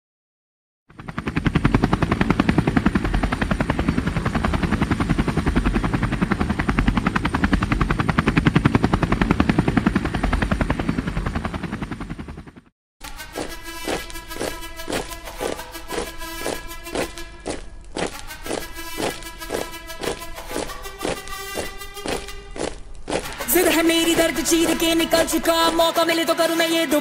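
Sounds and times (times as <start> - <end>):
helicopter rotor beating: 0.9 - 27.0
thin high whine: 13.0 - 26.4.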